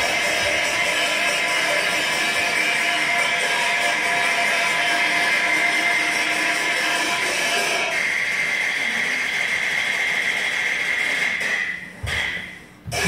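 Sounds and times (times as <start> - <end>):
low thumps: 12.0 - 13.0.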